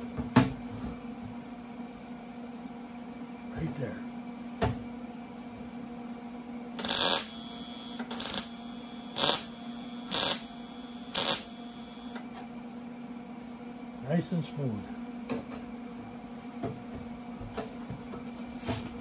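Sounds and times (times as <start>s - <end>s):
welding arc bursts: 6.8s - 12.2s.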